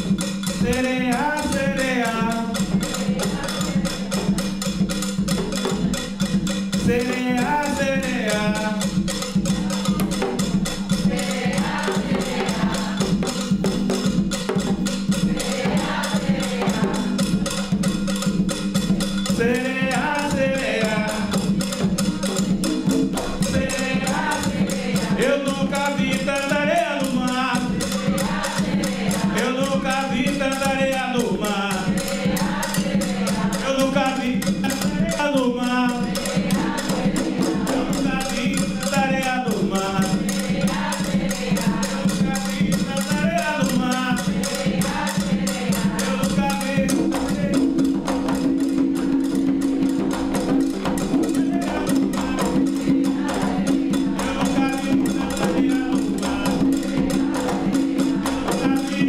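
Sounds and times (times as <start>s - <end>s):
percussion ensemble drumming: 0.0s - 59.0s
man singing: 0.5s - 4.5s, 6.7s - 11.1s, 19.2s - 28.3s, 29.1s - 36.6s, 37.4s - 40.8s, 41.5s - 48.0s, 51.1s - 59.0s.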